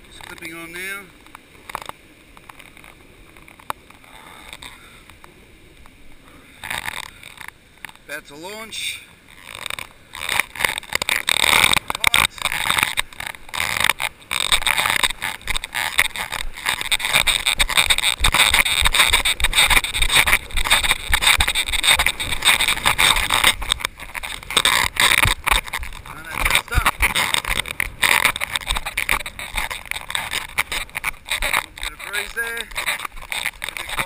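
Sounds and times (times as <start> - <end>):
wind buffeting microphone: 10.2 - 34.0.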